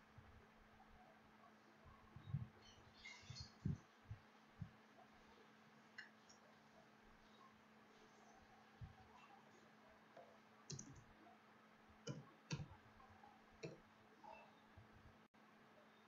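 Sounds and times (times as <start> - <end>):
keyboard and mouse clicks: 10.2 - 11.1.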